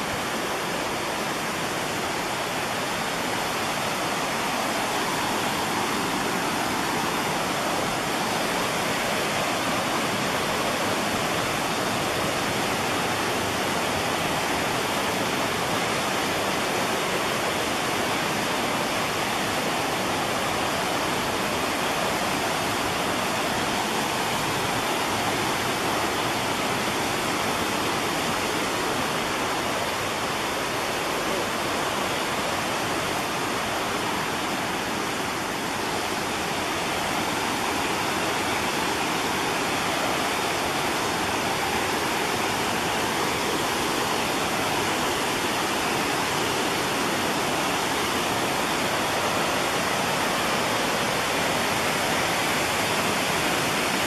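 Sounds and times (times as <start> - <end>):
water rushing over small waterfalls: 0.0 - 54.0.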